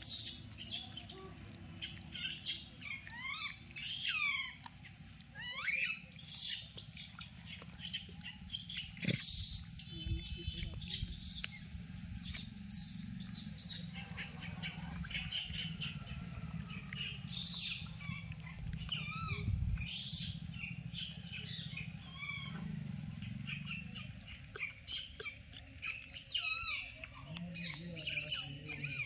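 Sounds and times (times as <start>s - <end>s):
high-pitched squeaking calls: 5.4s - 7.2s, 17.0s - 22.6s, 23.4s - 27.0s
steady low rumble: 6.7s - 28.7s.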